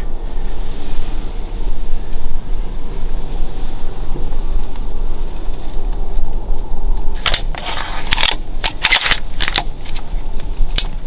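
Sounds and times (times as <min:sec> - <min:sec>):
wind rumbling on microphone: 0:00.0 - 0:11.0
rifle clicks and rattles: 0:07.2 - 0:11.0.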